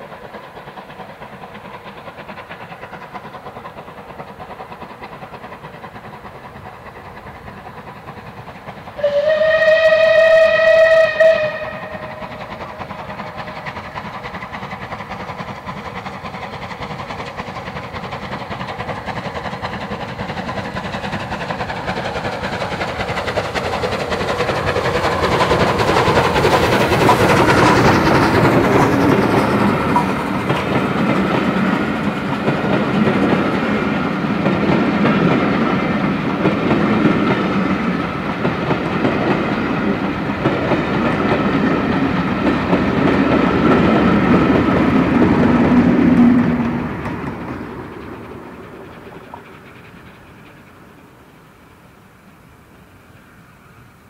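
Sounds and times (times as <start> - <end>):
coaches clickety-clack: 0.0 - 9.0, 11.3 - 51.0
steam locomotive working hard: 0.0 - 54.0
steam locomotive whistle: 9.0 - 12.5, 45.2 - 47.0.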